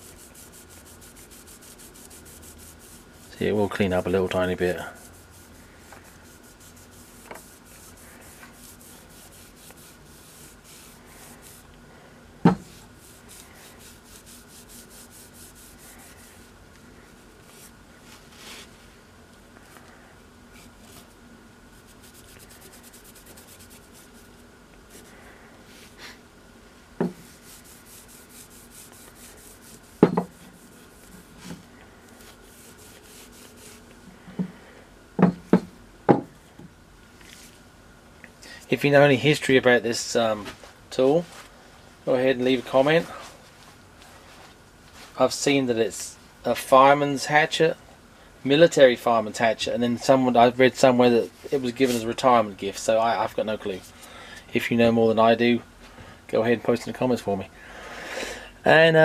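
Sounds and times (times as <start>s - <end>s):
cloth wiping wooden handle: 0.0s - 11.7s, 12.6s - 18.8s, 21.8s - 26.1s, 27.0s - 34.5s, 51.4s - 52.2s.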